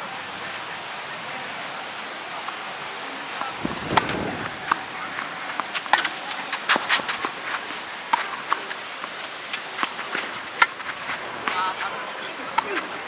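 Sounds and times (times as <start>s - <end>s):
tennis racket hitting ball: 3.4s - 7.4s, 9.5s - 11.6s
shoe scuffs on court: 5.7s - 7.8s.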